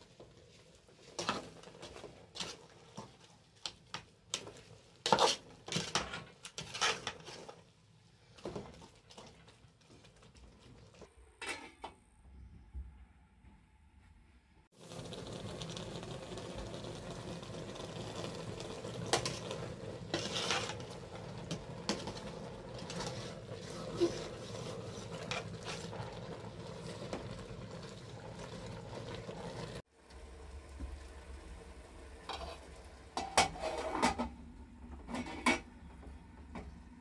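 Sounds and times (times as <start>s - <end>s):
metal ladle scraping a pot: 5.0s - 7.6s, 19.1s - 26.0s, 32.3s - 34.3s.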